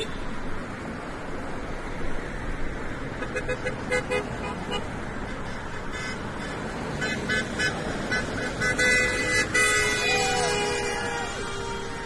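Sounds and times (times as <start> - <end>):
car horns honking: 0.0 - 0.4, 3.2 - 5.0, 5.9 - 12.0
road traffic noise: 0.0 - 12.0.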